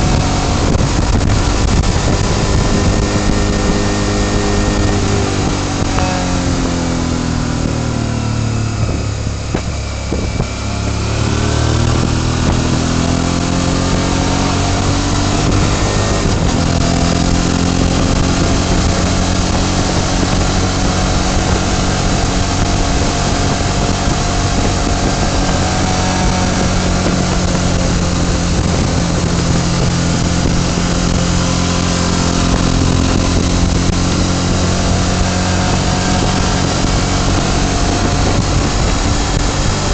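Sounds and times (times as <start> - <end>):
motorcycle engine: 0.0 - 39.9
wind and road noise: 0.0 - 39.9.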